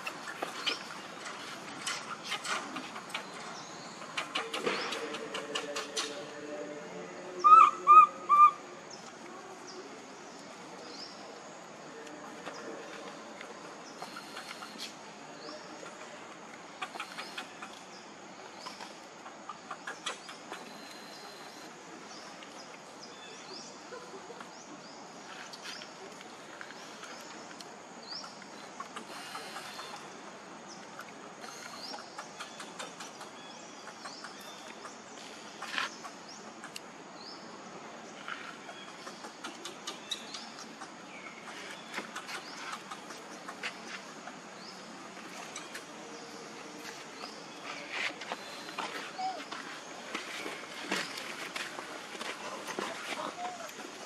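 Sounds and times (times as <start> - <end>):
faint chirps: 19.8 - 37.4.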